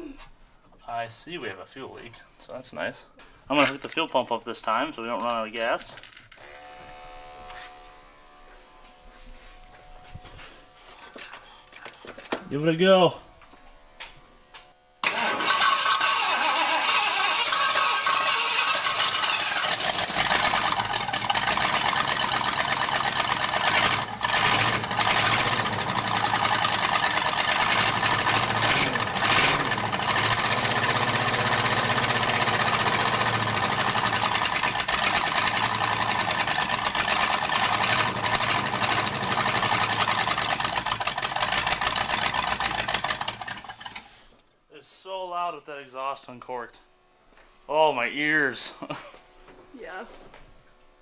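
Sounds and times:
engine running rough: 16.9 - 44.1.

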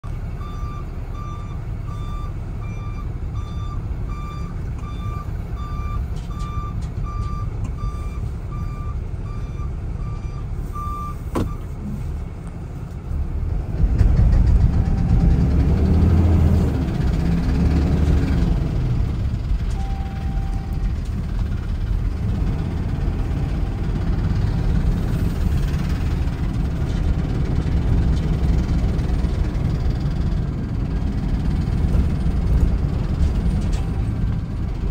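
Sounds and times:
truck reverse alarm beeping: 0.0 - 12.0, 14.6 - 16.5, 19.0 - 26.4
truck engine drone: 0.0 - 34.9.

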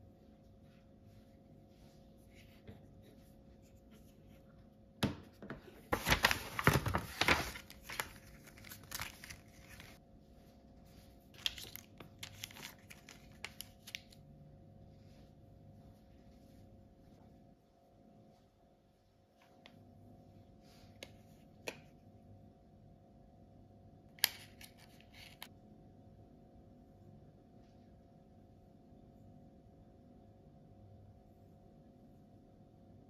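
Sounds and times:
foil sachets crinkling: 5.9 - 10.0, 11.4 - 14.2.

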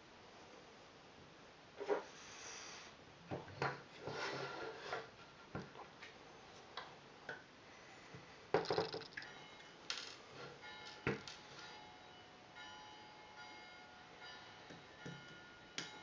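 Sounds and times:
metal parts clicking and knocking: 8.6 - 10.2.

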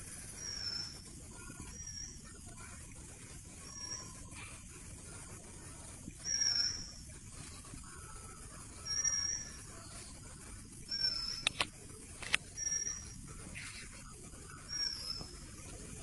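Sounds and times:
steady outdoor hiss: 0.0 - 16.0
sharp clicks: 11.4 - 12.5
bird calling: 14.5 - 15.5.

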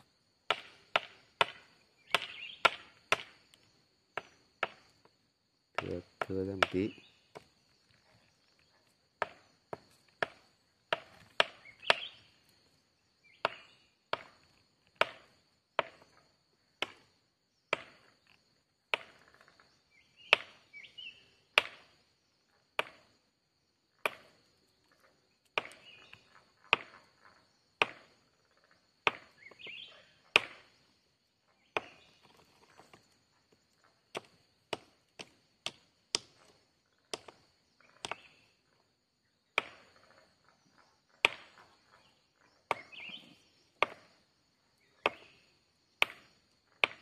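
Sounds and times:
sharp chopping knocks: 5.8 - 7.4, 15.0 - 16.0.

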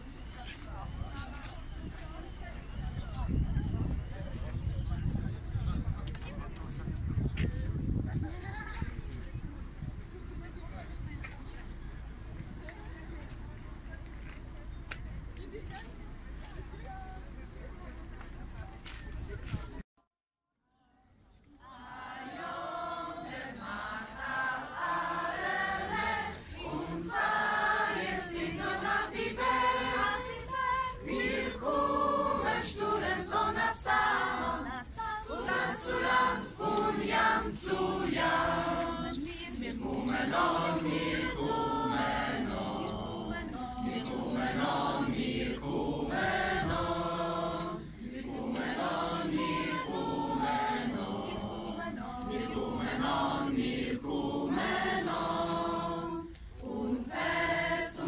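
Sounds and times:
choir singing unaccompanied: 21.6 - 58.0.

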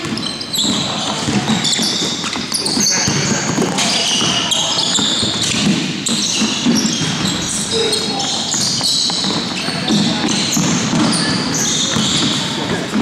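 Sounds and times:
basketball bouncing: 0.0 - 13.0
sneakers squeaking on court: 0.0 - 13.0.

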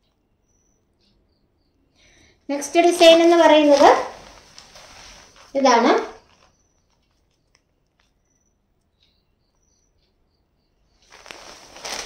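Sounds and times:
faint high chirps: 0.0 - 2.9, 3.7 - 12.0
faint ticks: 6.2 - 12.0.

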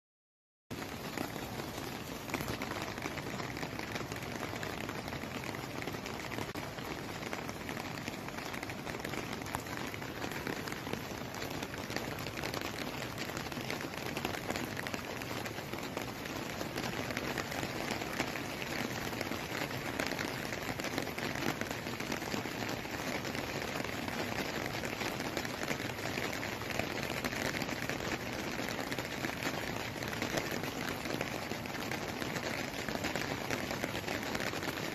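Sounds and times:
heavy rain falling: 0.7 - 34.9.

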